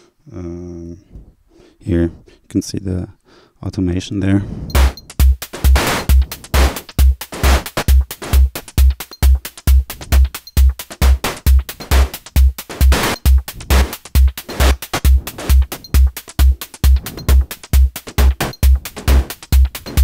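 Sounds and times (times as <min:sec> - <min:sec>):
snare with delay: 0:04.7 - 0:09.5, 0:11.1 - 0:20.0
hi-hats: 0:04.7 - 0:20.0
kick drum: 0:04.7 - 0:20.0.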